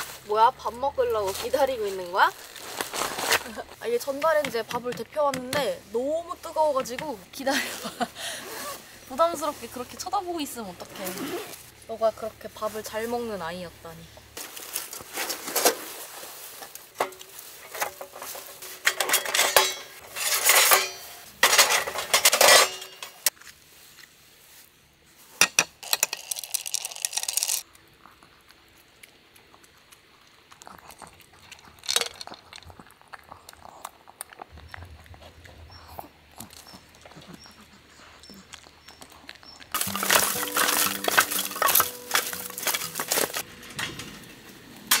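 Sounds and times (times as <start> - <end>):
metal grill panels clanking: 17.8 - 23.2, 39.8 - 45.0.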